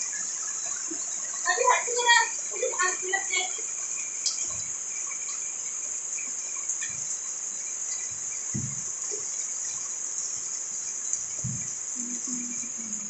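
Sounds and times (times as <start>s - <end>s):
insects chorus: 0.0s - 13.0s
soft low thumps: 8.2s - 9.0s, 11.4s - 13.0s.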